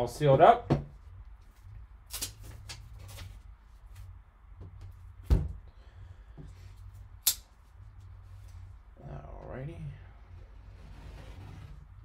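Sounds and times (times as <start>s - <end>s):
sharp click: 7.2s - 7.5s.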